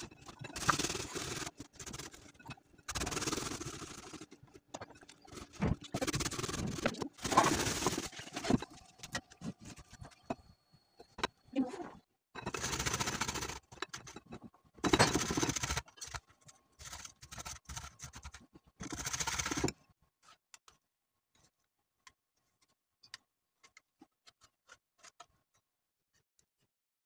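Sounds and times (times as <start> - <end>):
faint scrapes and clicks: 15.4 - 26.7.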